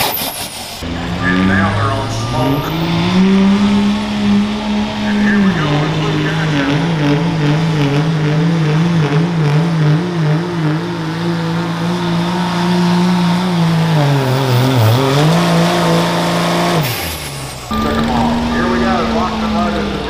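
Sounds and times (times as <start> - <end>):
diesel engine at full throttle: 0.0 - 20.0.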